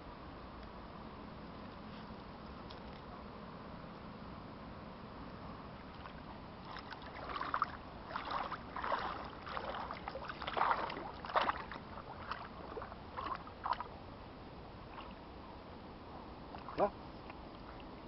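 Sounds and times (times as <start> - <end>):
dog splashing through water: 5.9 - 13.9.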